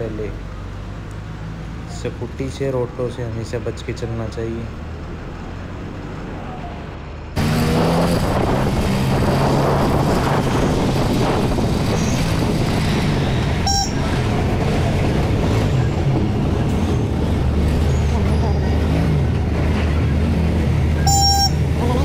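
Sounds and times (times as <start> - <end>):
wind and road noise: 0.0 - 22.0
short horn beep: 13.6 - 14.1, 21.0 - 21.6.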